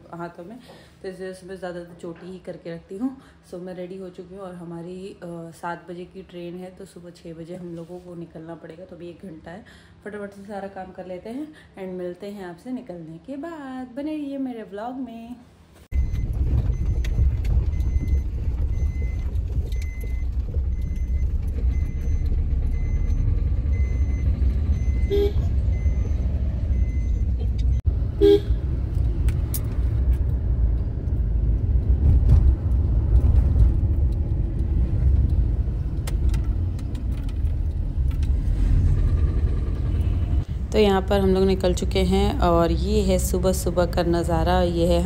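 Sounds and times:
engine and road rumble: 0:15.8 - 0:45.0
faint regular beeping: 0:15.9 - 0:28.4
car horn toots: 0:25.0 - 0:25.6, 0:28.1 - 0:28.6.

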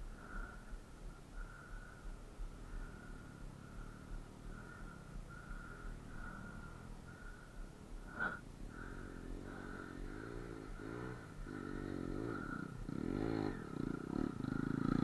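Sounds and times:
dirt bike engine revving: 0:08.7 - 0:15.0.

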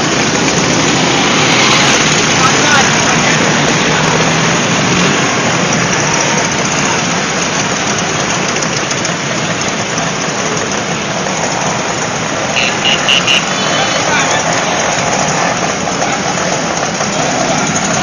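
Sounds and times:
scooter engines passing by: 0:00.0 - 0:18.0.

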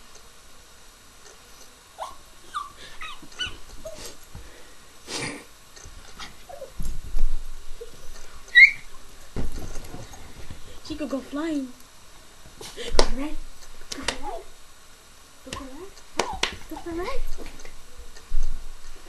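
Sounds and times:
small dog whining and yipping: 0:02.0 - 0:04.2, 0:06.5 - 0:06.8, 0:08.5 - 0:09.0
dog scrambling thumps and rustling: 0:05.8 - 0:10.8, 0:16.2 - 0:19.0.

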